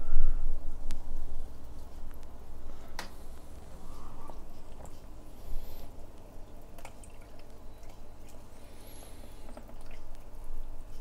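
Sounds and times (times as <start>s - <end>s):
water drips: 6.1s - 8.6s, 9.4s - 11.0s.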